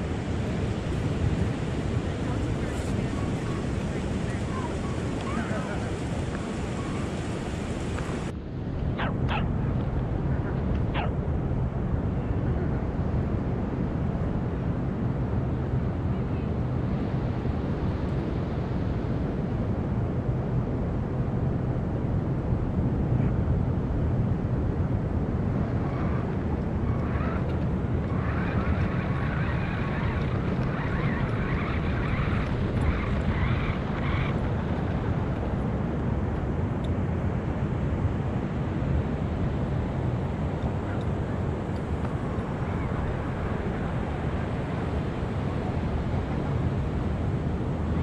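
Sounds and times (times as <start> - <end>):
surf breaking on beach: 0.0 - 8.3
wind rumble on microphone: 0.0 - 48.0.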